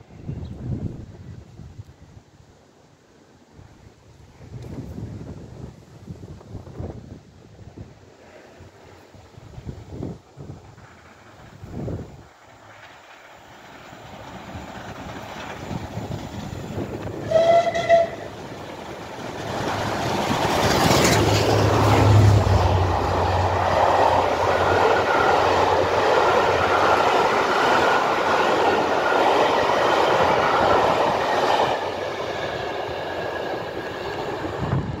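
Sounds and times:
steam locomotive passing: 3.1s - 35.0s
train wheels on rails: 8.2s - 35.0s
train whistle blast: 17.2s - 18.3s.

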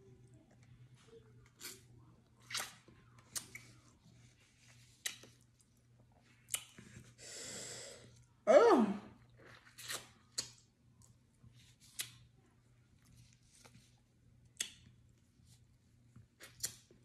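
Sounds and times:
lip smacks and slurps: 4.8s - 5.8s
person's voiced vocal sound: 8.5s - 9.1s.

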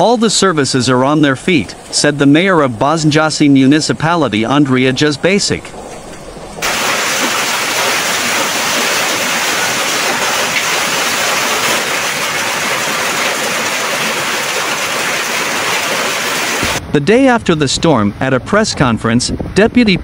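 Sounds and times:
heavy hail and rain pouring: 6.6s - 16.8s.

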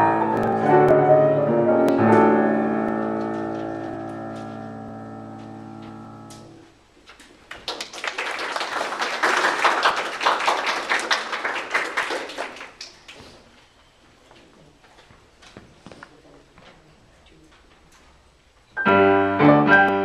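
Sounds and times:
grand piano chord ringing: 0.0s - 6.6s
audience applause: 7.4s - 13.2s.

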